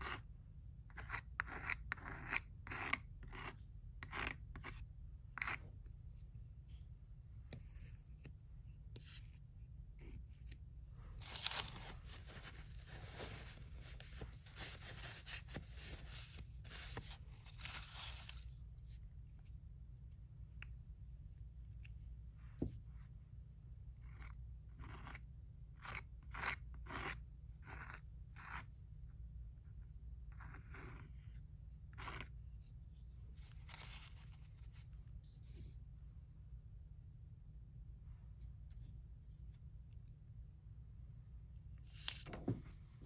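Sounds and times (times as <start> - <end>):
palette knife scraping paste: 0.0 - 5.9, 24.0 - 28.9, 29.6 - 35.8
paper towel crinkling: 11.0 - 18.5.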